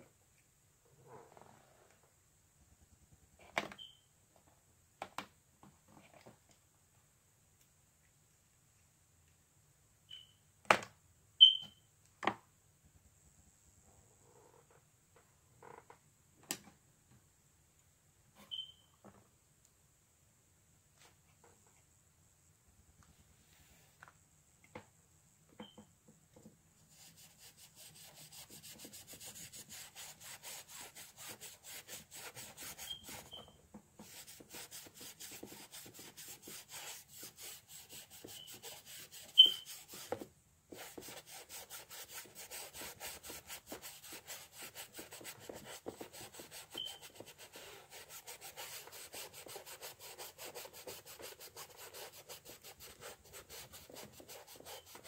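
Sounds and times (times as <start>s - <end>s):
paintbrush scrubbing on canvas: 26.9s - 33.4s, 34.0s - 55.0s.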